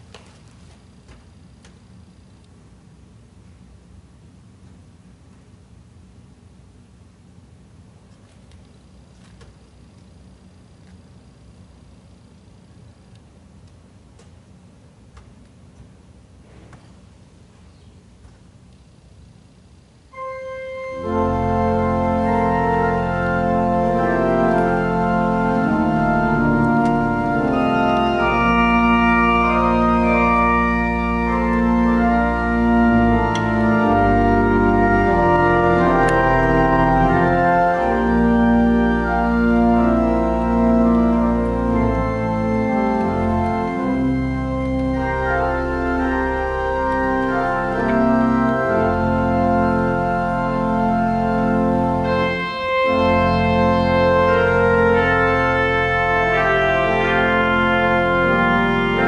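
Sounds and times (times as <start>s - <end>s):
church organ chords: 20.1s - 59.0s.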